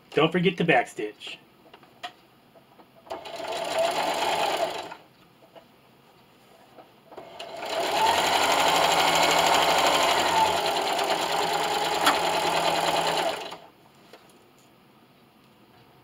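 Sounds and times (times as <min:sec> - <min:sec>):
electric sewing machine stitching: 0:03.1 - 0:05.0, 0:07.2 - 0:13.7.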